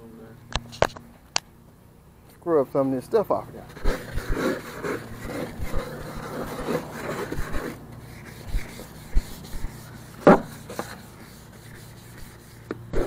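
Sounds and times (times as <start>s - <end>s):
scrub brush rubbing: 3.6s - 13.0s.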